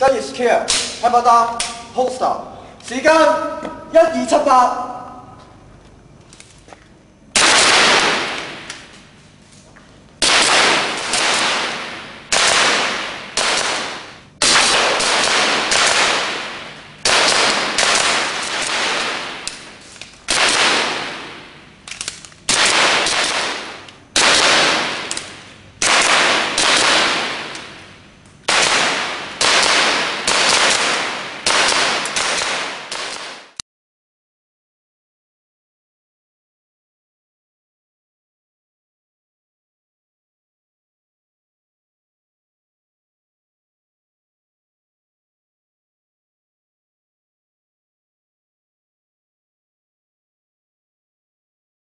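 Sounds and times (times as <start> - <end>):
loud gunshot-like bangs: 7.4 - 8.7, 10.2 - 19.6, 20.3 - 21.6, 22.5 - 27.9, 28.5 - 33.6.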